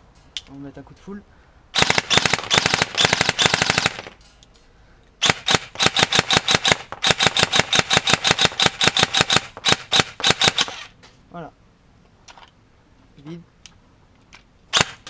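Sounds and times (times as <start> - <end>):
electric airsoft rifle firing: 1.8 - 4.2, 5.2 - 11.0, 14.7 - 15.0.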